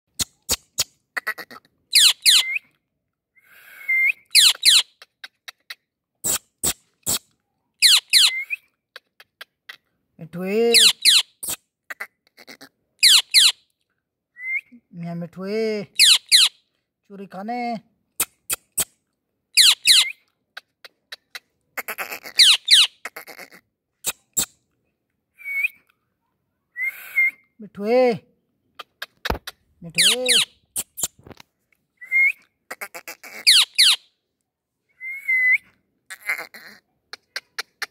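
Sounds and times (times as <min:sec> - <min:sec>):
parakeet screeching: 0:01.3 - 0:02.6, 0:04.3 - 0:04.9, 0:07.8 - 0:08.5, 0:10.8 - 0:11.3, 0:12.4 - 0:13.6, 0:16.0 - 0:16.5, 0:19.6 - 0:20.1, 0:21.8 - 0:24.5, 0:30.0 - 0:30.6, 0:32.7 - 0:34.0, 0:36.1 - 0:36.8
short raspy bursts: 0:06.2 - 0:07.3.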